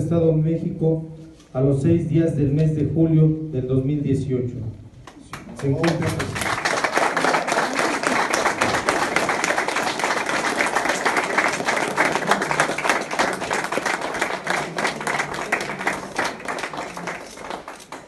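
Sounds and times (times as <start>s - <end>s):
crowd clapping: 5.1s - 18.0s.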